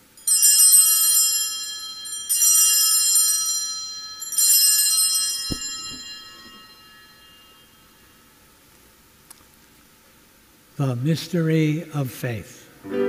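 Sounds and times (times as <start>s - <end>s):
small bells ringing: 0.0s - 8.6s.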